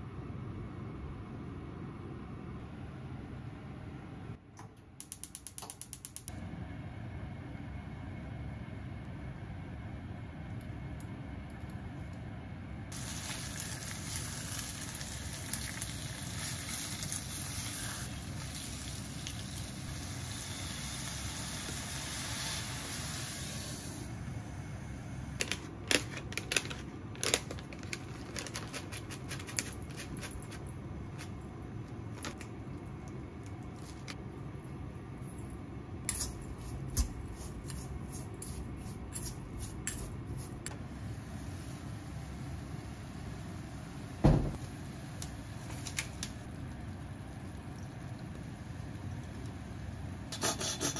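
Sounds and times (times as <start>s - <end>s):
meat sizzling in a frying pan: 13.0s - 23.9s.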